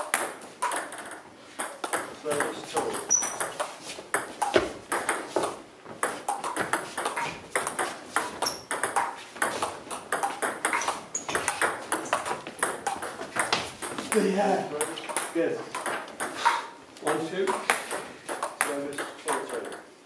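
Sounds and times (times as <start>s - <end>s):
table tennis ball clicking: 6.3s - 13.9s, 14.8s - 19.9s.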